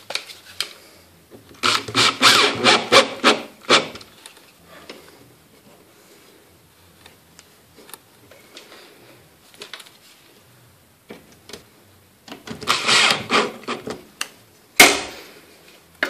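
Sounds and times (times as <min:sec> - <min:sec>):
cordless drill driving screw: 0:01.6 - 0:04.0, 0:12.6 - 0:13.8.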